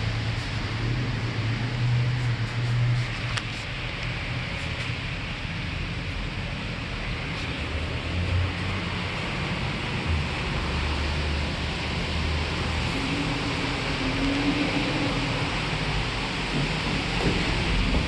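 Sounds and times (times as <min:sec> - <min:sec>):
high steady whine: 0:00.0 - 0:15.8.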